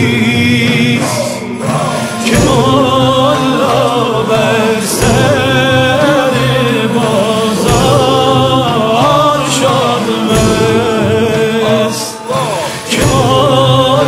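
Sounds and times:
low steady accompaniment: 0.0s - 14.0s
man singing solo: 0.0s - 14.0s
men's chorus chanting: 0.0s - 14.0s.

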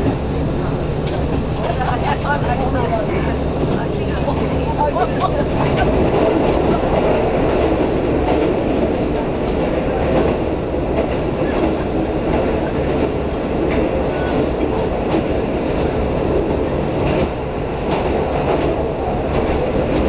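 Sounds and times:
train rumbling on rails: 0.0s - 20.0s.

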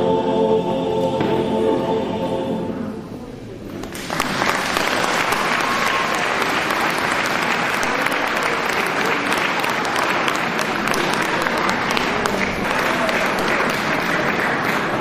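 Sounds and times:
male choir singing: 0.0s - 3.0s
audience applauding: 3.8s - 15.0s.

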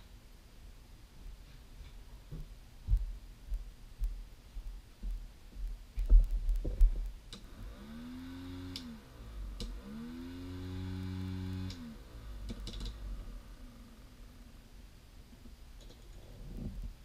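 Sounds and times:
small motor humming: 7.4s - 13.7s.

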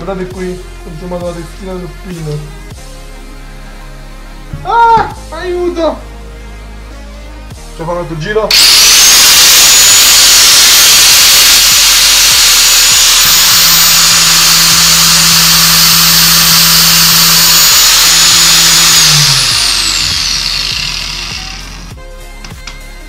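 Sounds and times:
angle grinder high-pitched whine: 8.5s - 22.0s.

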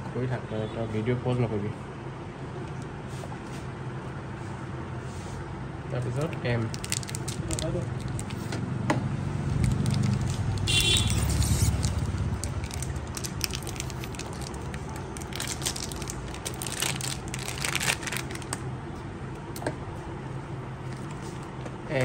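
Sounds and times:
plastic wrapping crinkling and tearing: 6.0s - 8.5s, 9.5s - 18.6s.

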